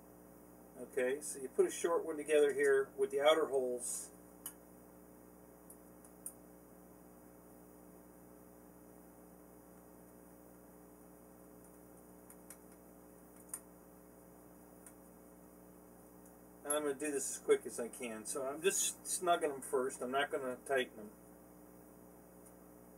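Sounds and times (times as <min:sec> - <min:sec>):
low room hum: 0:00.0 - 0:22.9
faint clicks of small parts: 0:11.6 - 0:13.7.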